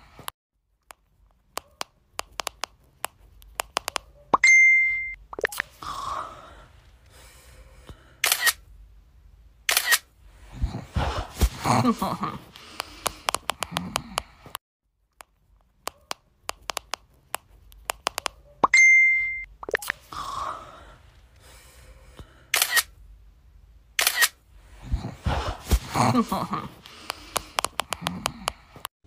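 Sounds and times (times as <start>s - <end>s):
short ding: 4.4s - 5.2s, 18.7s - 19.5s
camera shutter clicking: 8.2s - 8.6s, 9.7s - 10.1s, 22.5s - 22.9s, 24.0s - 24.4s.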